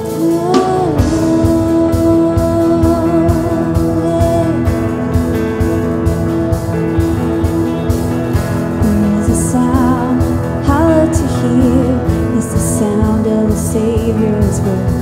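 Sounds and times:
electric guitars: 0:00.0 - 0:15.0
keyboard: 0:00.0 - 0:15.0
drum beat: 0:02.6 - 0:13.8.

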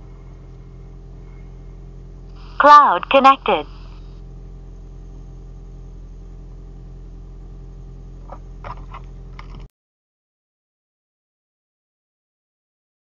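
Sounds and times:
low car cabin hum: 0:00.0 - 0:09.7.

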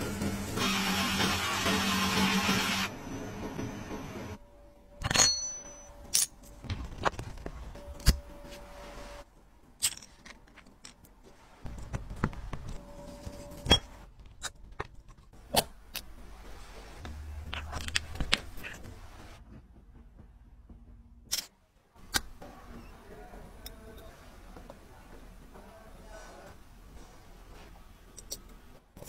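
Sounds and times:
metal parts clicking and tapping: 0:05.0 - 0:08.2, 0:09.8 - 0:12.8.

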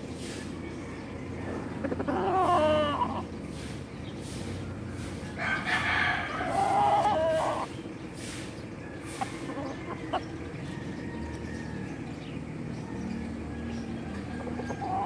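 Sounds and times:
rooster crowing: 0:05.3 - 0:07.7, 0:09.1 - 0:15.0.

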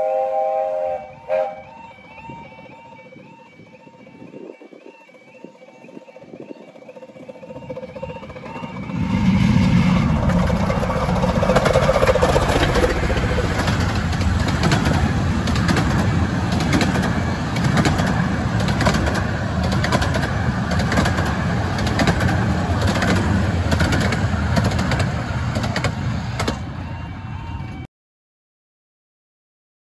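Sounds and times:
miniature steam train passing: 0:00.0 - 0:27.9
carriages rumbling past: 0:01.6 - 0:27.9
wheels clicking over rail joints: 0:10.1 - 0:27.8.

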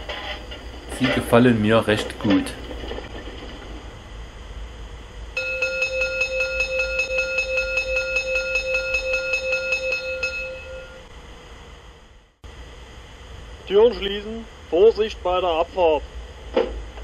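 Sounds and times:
electric bell ringing rapidly: 0:05.4 - 0:11.1.

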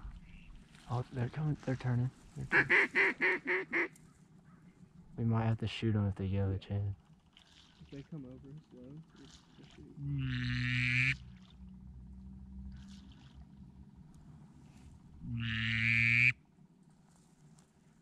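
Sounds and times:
duck call long note: 0:15.4 - 0:16.3.

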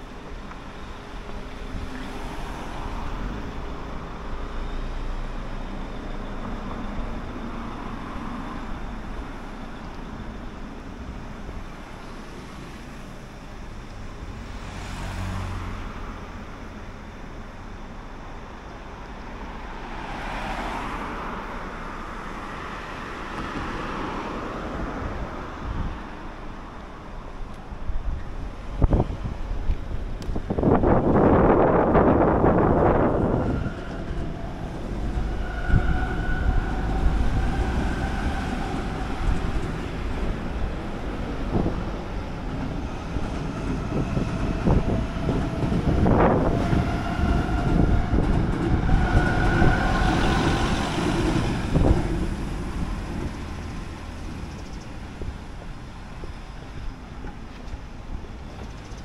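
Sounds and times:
traffic hum: 0:00.0 - 0:59.0
vehicles passing: 0:00.0 - 0:59.0.

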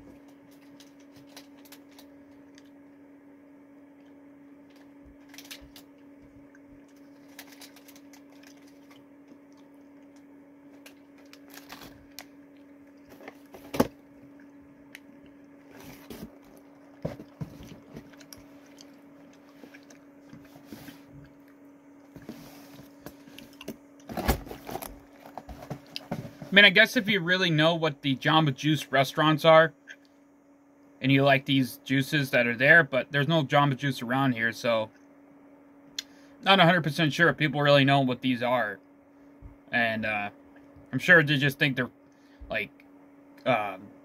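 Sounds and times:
steady low hum: 0:00.0 - 0:44.0
person chewing: 0:14.3 - 0:22.2, 0:23.2 - 0:24.1
soft handling noises: 0:15.6 - 0:26.7.

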